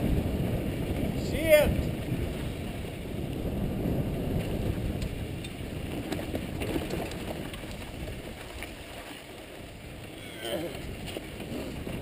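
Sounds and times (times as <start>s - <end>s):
wind on microphone: 0.0s - 12.0s
bike clicks and rattles: 4.4s - 8.7s
tyres on rocky ground: 4.5s - 12.0s.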